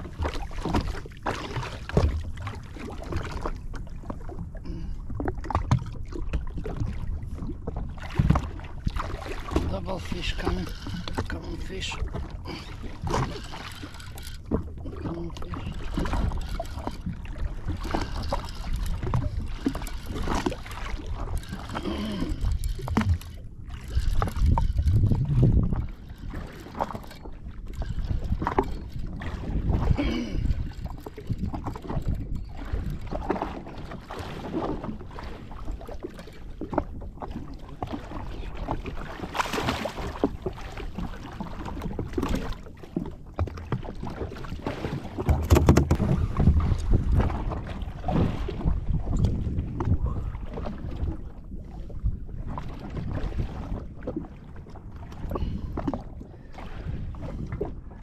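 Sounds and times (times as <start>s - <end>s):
water lapping against hull: 0.0s - 58.0s
wind buffeting microphone: 6.5s - 33.7s, 45.0s - 54.3s.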